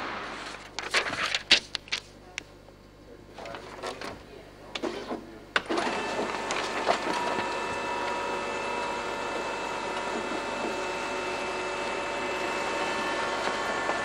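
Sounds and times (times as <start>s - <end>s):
document feeder humming: 0.0s - 2.2s, 3.3s - 14.0s
document feeder clunk: 4.8s - 8.2s.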